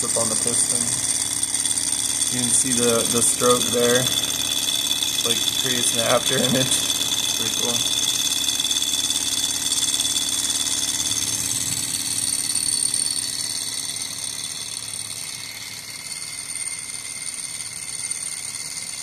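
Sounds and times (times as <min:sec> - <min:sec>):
engine model mechanical whir: 0:00.0 - 0:19.0.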